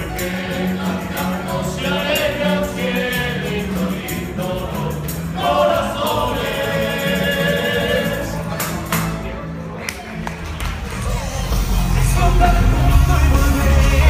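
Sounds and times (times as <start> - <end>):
men's chorus singing: 0.0 - 9.1, 11.9 - 14.0
strummed guitars and lutes: 0.0 - 14.0.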